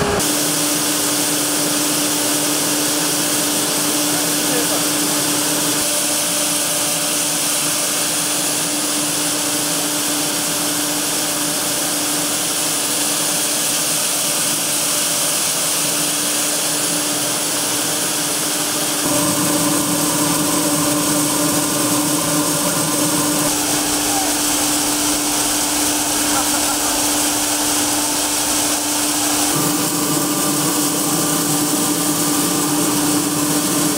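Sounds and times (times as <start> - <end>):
deep running machine: 0.0 - 13.0, 16.4 - 33.9
grain machinery whirring: 0.0 - 33.9
grain pouring hiss: 0.2 - 33.9
steady hum: 16.5 - 33.9.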